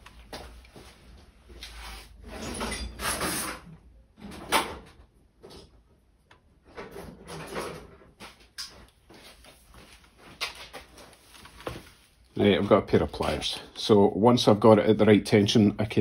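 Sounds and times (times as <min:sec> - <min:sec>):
drawer sliding: 0:01.6 - 0:04.8
tools scraping and knocking: 0:01.6 - 0:08.8.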